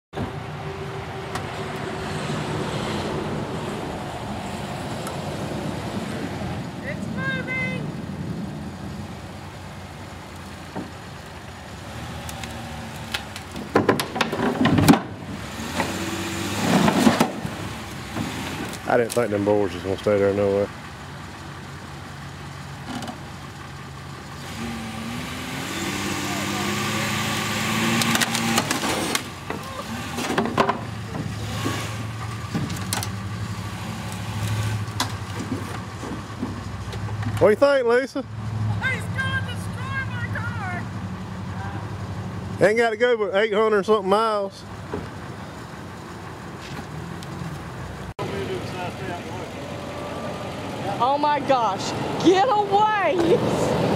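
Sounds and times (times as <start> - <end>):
car engine running slowly: 6.6 - 15.2, 17.8 - 24.4, 32.1 - 38.8, 39.4 - 53.7
wooden ramps knocking and creaking: 13.4 - 15.2, 29.4 - 31.7, 35.0 - 37.4.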